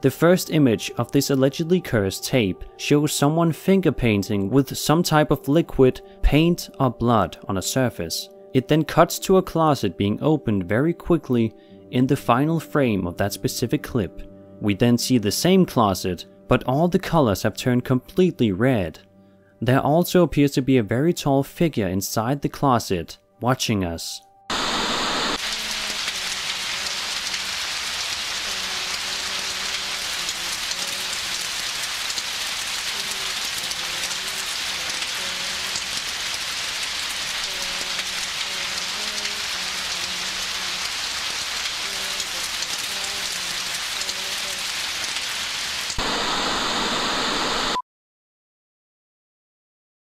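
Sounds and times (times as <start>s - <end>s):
steady hiss: 24.5s - 47.8s.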